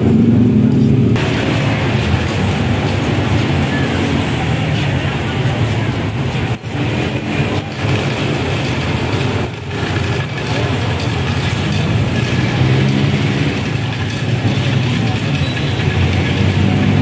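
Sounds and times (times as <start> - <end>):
engine humming steadily: 0.0 - 17.0.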